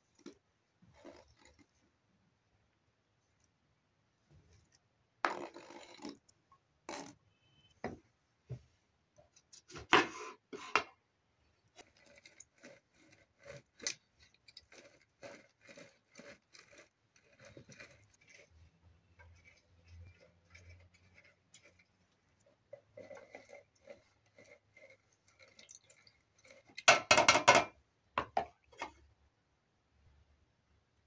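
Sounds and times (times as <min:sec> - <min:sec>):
knife scraping cutting board: 0:09.7 - 0:10.9, 0:11.8 - 0:18.6, 0:22.7 - 0:25.7
lemon rubbing on citrus juicer: 0:11.8 - 0:26.9.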